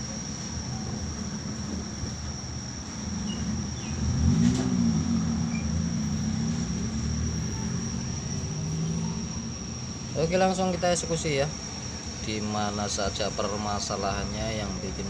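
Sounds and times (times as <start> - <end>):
high-pitched whine: 0.0 - 15.0
vehicle engine running: 0.0 - 15.0.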